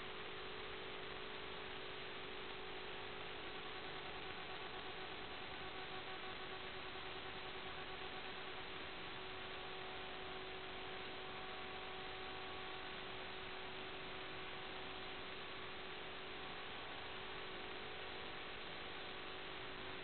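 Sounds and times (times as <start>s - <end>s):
faint hum tones: 0.0s - 20.0s.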